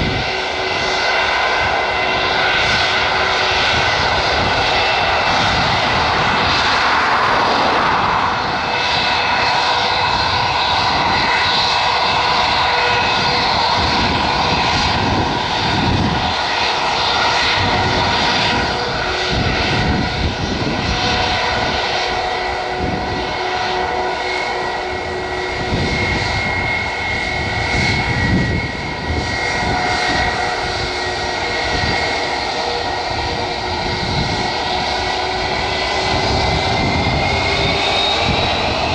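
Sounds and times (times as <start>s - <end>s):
jet engines whining: 0.0s - 38.9s
wind buffeting microphone: 0.0s - 38.9s.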